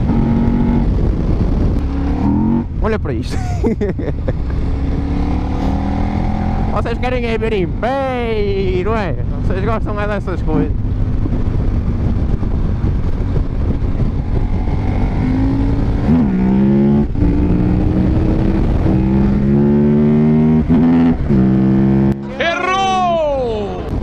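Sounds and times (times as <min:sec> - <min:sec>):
motorcycle engine revving hard: 0:00.0 - 0:02.8, 0:04.5 - 0:06.9, 0:13.0 - 0:22.2.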